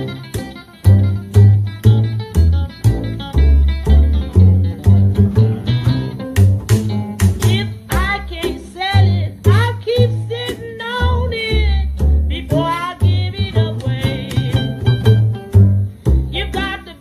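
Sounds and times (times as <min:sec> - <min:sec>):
wavering lead melody: 0:00.0 - 0:07.2
plucked double bass walking line: 0:00.0 - 0:17.0.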